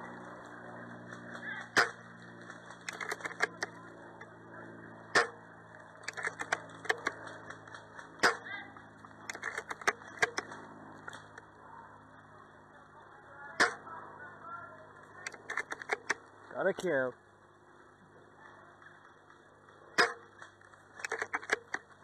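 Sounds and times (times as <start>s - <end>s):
airsoft guns firing: 6.0s - 7.4s.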